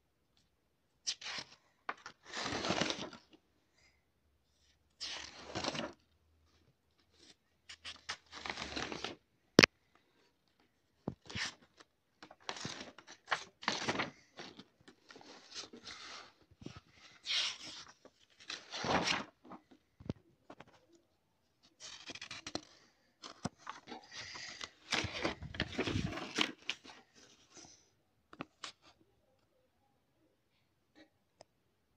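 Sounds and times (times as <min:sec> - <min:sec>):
paper pages rustling: 0:01.3 - 0:03.4, 0:05.2 - 0:06.0, 0:07.1 - 0:09.2, 0:10.5 - 0:21.0, 0:21.6 - 0:27.8.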